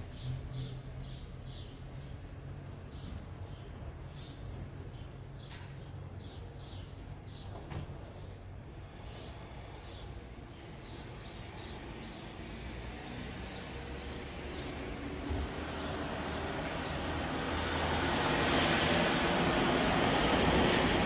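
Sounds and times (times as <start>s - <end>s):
engine approaching: 10.5s - 21.0s.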